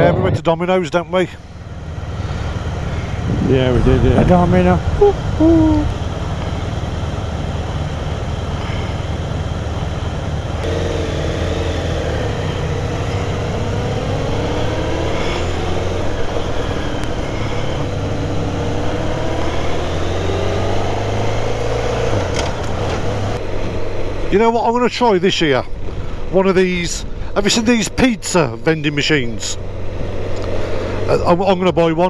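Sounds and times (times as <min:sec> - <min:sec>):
wind and road noise: 0:00.0 - 0:32.0
motorcycle engine running: 0:01.4 - 0:24.5.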